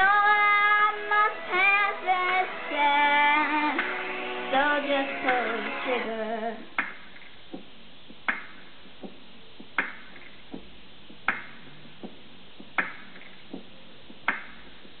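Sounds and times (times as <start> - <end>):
soft beat knocks: 6.6 - 15.0
sharp beat clicks: 6.7 - 15.0.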